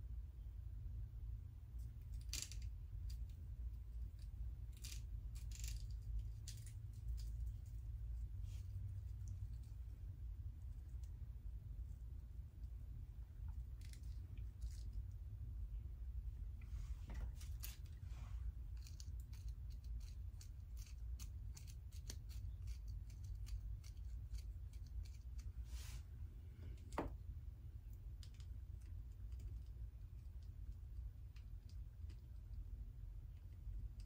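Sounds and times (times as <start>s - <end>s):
low steady hum: 0.0s - 34.0s.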